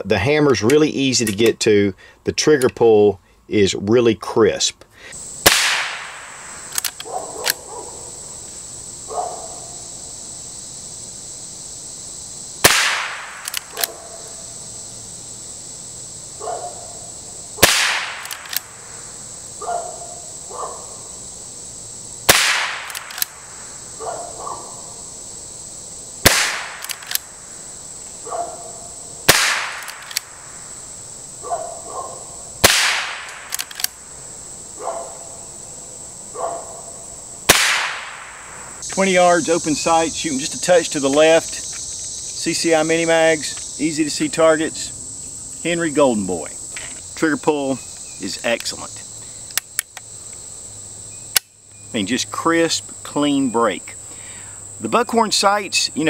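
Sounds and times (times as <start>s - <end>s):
high insect drone: 0.0s - 56.0s
rifle shots: 5.4s - 7.6s, 12.6s - 14.2s, 17.6s - 18.8s, 22.3s - 23.5s, 26.2s - 27.3s, 29.2s - 30.4s, 32.6s - 34.0s, 37.5s - 38.6s
rifle lever clacking: 6.7s - 7.6s, 13.4s - 14.0s, 18.2s - 18.7s, 22.8s - 23.4s, 26.7s - 27.3s, 29.8s - 30.3s, 33.3s - 34.0s.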